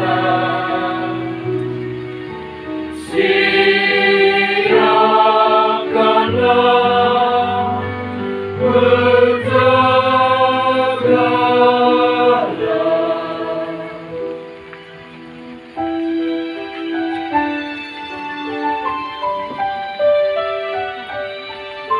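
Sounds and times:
choir singing a cappella: 0:00.0 - 0:14.6.

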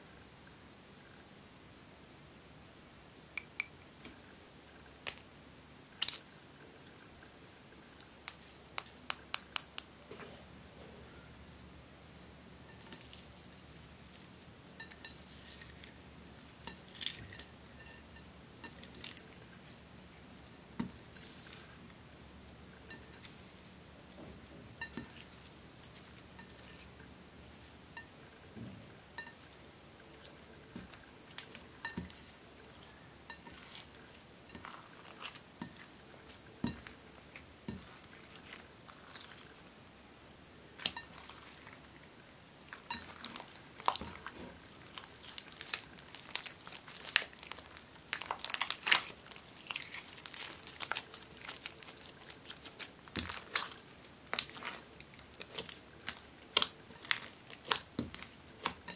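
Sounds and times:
glitter clinking against glass bowl: 0:14.8 - 0:15.8.

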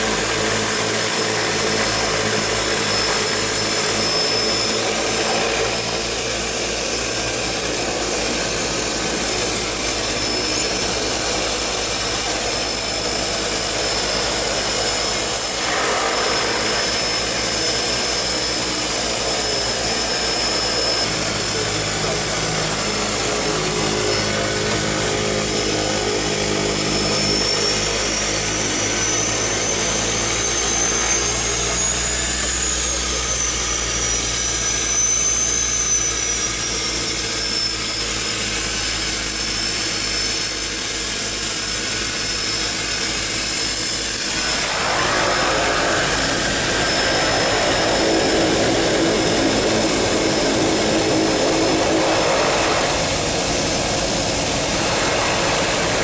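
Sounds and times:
high turbine whine: 0:00.0 - 0:56.0
turboprop engines droning: 0:00.0 - 0:56.0.

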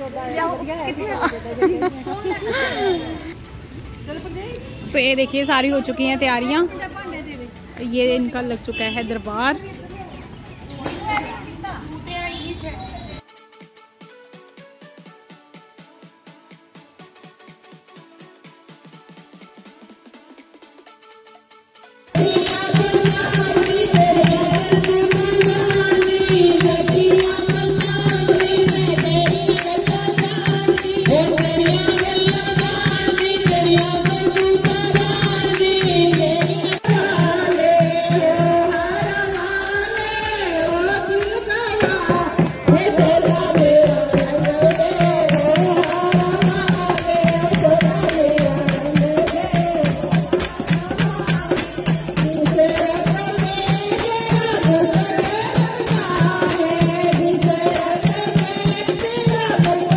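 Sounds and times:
rhythmic hand-clapping: 0:21.8 - 0:37.4, 0:42.4 - 0:59.9
women singing devotional song: 0:22.2 - 0:59.9.

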